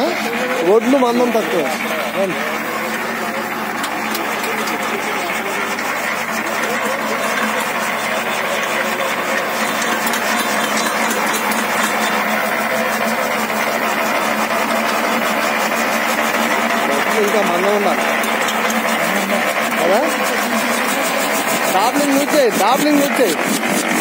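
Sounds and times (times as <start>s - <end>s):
machine motor and fan hum: 0.0s - 24.0s
fast regular ticking: 0.7s - 24.0s.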